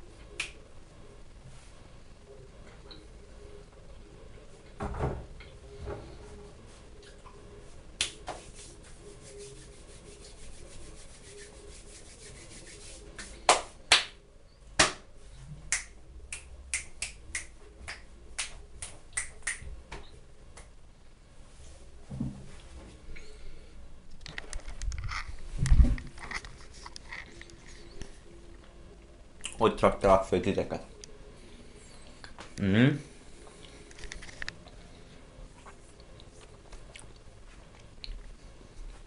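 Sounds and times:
hand snapping clicks: 15.7 - 19.6.

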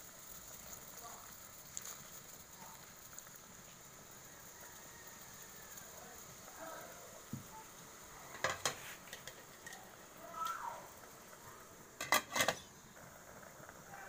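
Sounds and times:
lid clattering onto pot: 8.3 - 9.8, 12.0 - 12.7
metal pot clinking: 8.3 - 9.9, 12.0 - 12.7.

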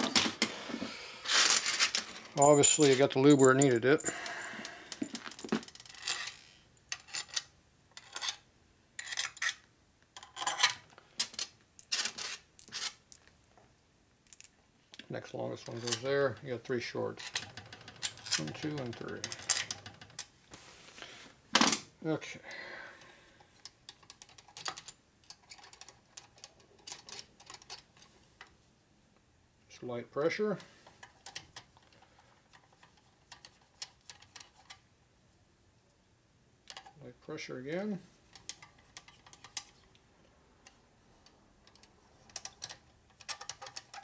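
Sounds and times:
metal screws clinking: 1.3 - 8.4, 10.2 - 13.6, 17.2 - 19.9.

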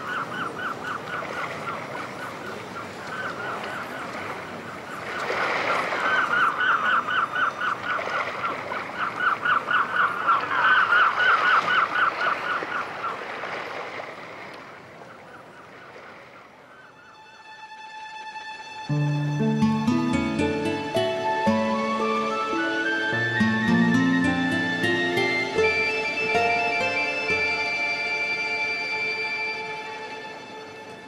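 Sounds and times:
birds honking calls: 19.2 - 28.9.

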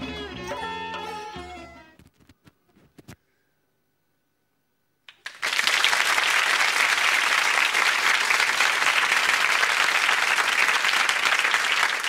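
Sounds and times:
applause: 5.1 - 12.0.

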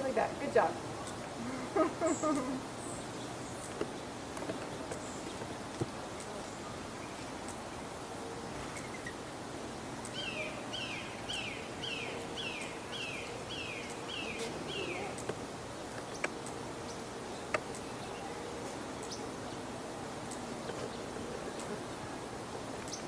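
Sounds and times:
outdoor background hiss: 0.0 - 23.0.

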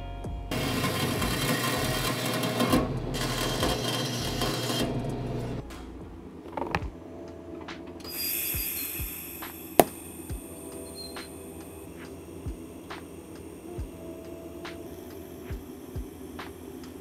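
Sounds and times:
bandsaw cutting metal rod: 0.5 - 5.1.

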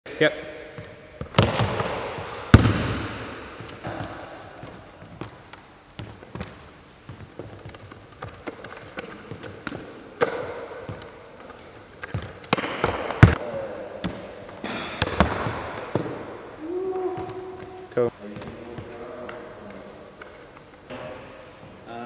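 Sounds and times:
basketball bouncing on wooden floor: 0.8 - 5.4, 12.0 - 13.4, 15.0 - 16.3
basketball slapping against hands: 7.4 - 13.4.

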